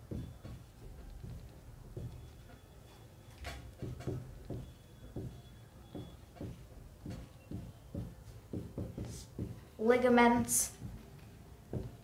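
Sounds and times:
marker squeaking on whiteboard: 0.0 - 9.6.

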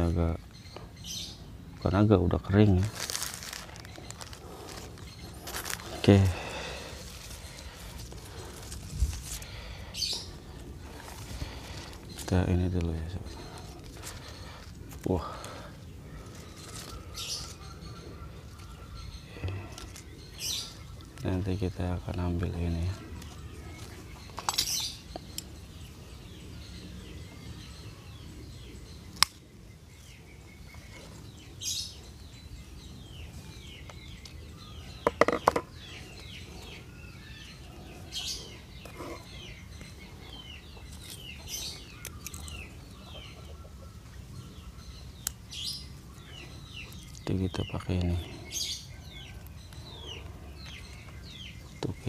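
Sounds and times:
small birds chirping: 0.0 - 52.0.

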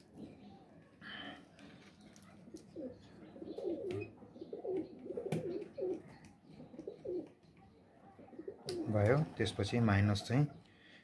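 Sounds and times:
pigeon cooing: 2.3 - 9.3.

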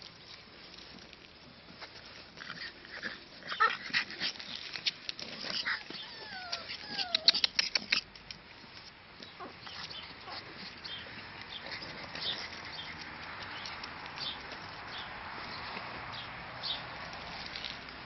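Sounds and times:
puppies whining: 5.4 - 8.0.

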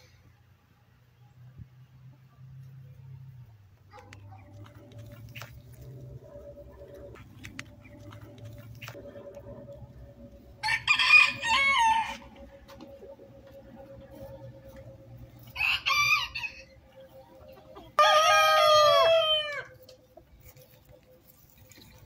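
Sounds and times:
faint steady hum: 0.0 - 22.0
rooster crowing: 10.6 - 12.6, 15.4 - 16.8, 18.0 - 19.8.

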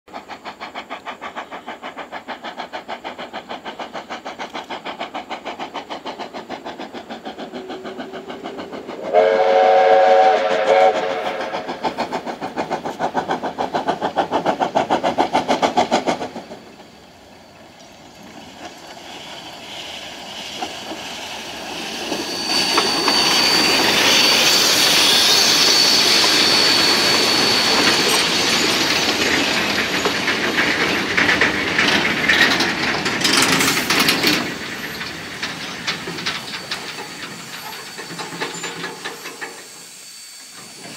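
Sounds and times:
steam locomotive exhaust beats: 0.1 - 40.9
steam whistle: 9.0 - 11.8
high wheel squeal: 16.9 - 31.7, 33.5 - 40.9
freight wagons rumbling past: 17.8 - 39.6.

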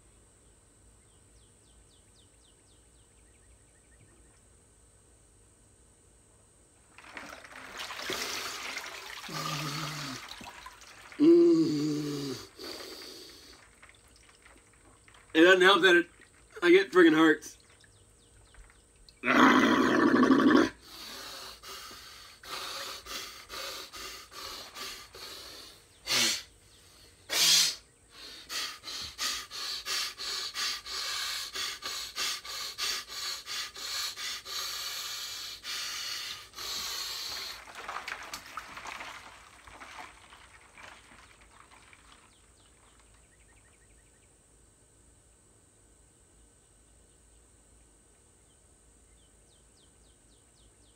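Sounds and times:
man gasping: 11.2 - 13.6
man panting: 20.8 - 37.6.

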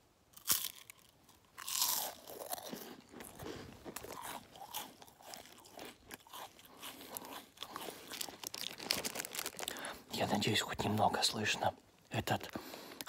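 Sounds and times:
crunchy chewing: 0.3 - 10.1
biting into crisp wafer: 0.4 - 9.8.

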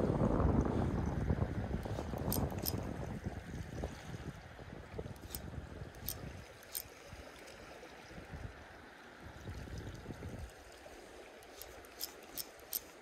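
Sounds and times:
sea water lapping among rocks: 0.7 - 13.0
sharp light ticks: 1.8 - 2.8, 5.2 - 5.4, 6.0 - 6.9, 11.4 - 13.0.

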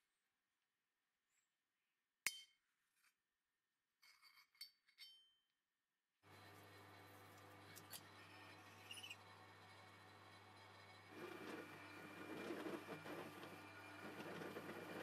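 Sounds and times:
drill press humming: 6.3 - 15.0.

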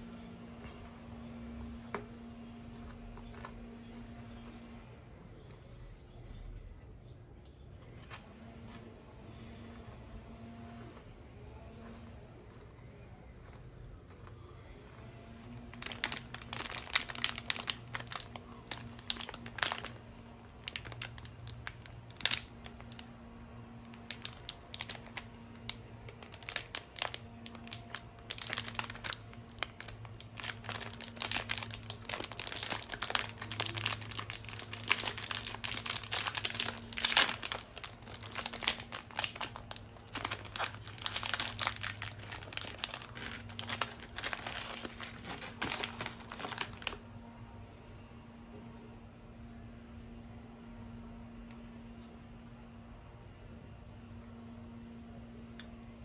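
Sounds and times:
plastic wrapper crinkling: 15.5 - 23.1, 23.8 - 47.0.

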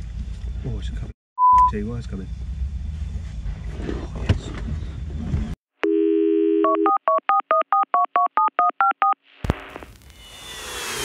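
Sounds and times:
in-car background noise: 0.0 - 5.6
touch-tone keypad beeps: 6.6 - 9.2.

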